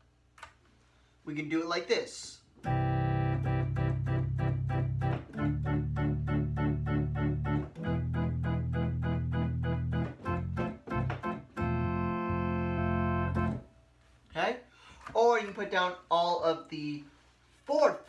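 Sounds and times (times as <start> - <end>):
electronic organ playing chords: 2.6 - 13.8.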